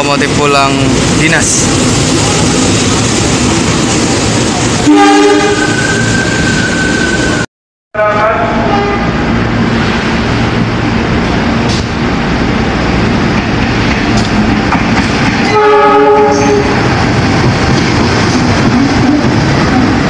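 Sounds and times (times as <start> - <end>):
locomotive horn chord: 4.8 - 5.8, 8.0 - 9.2, 15.5 - 16.8.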